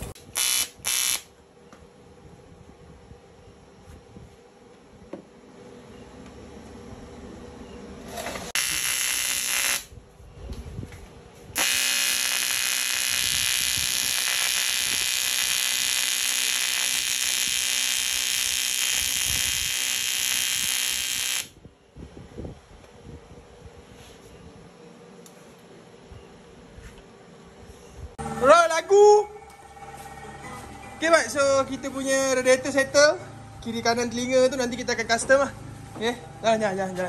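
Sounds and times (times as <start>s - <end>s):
welding arc buzzing: 0.0s - 1.3s, 8.5s - 10.0s, 11.6s - 21.6s.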